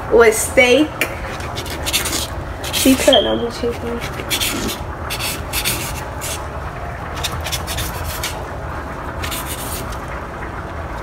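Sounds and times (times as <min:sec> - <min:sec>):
steady low rumble: 0:00.0 - 0:11.0
blade scraping foam tray: 0:01.2 - 0:06.4, 0:07.2 - 0:08.4, 0:09.2 - 0:10.0
knife slicing raw meat: 0:04.0 - 0:06.4.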